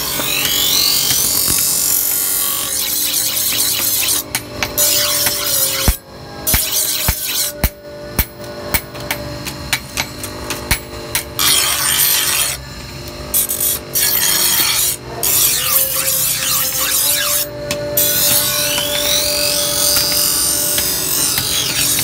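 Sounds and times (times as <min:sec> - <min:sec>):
grinder motor hum: 0:00.0 - 0:22.0
blade grinding on wheel: 0:11.4 - 0:12.7, 0:13.3 - 0:22.0.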